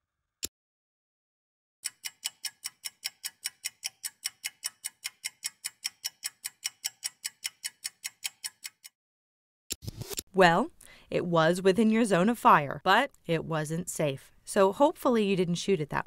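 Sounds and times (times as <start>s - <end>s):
fast clock-like ticking: 1.8s - 8.9s.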